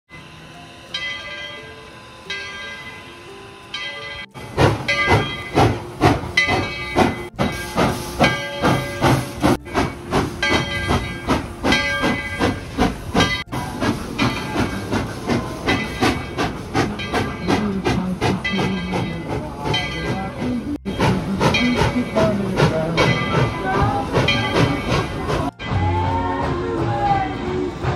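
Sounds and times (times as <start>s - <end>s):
steam locomotive chuffing: 0.2s - 27.9s
hissing steam: 4.3s - 25.5s.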